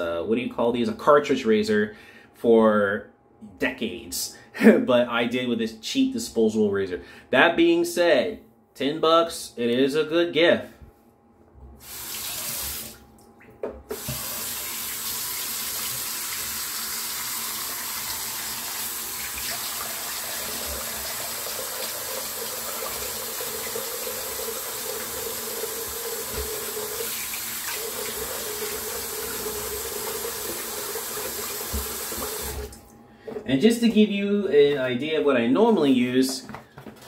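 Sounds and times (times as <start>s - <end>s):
face being rinsed by hand: 11.8s - 13.0s, 13.9s - 32.8s
tap running into sink: 13.5s - 15.1s, 26.1s - 27.0s, 31.3s - 32.8s.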